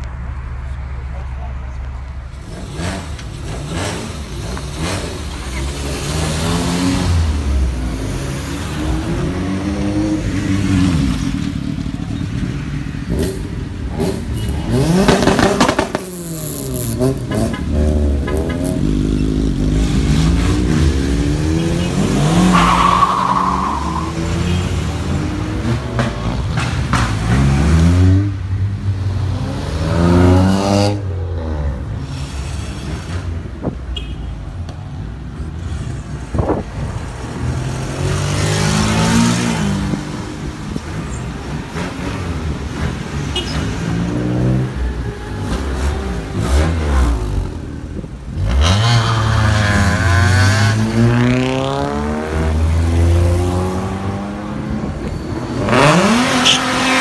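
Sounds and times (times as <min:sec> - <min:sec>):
cars revving and driving off: 0:00.0 - 0:57.0
motorcycle revving: 0:02.4 - 0:22.8, 0:35.6 - 0:57.0.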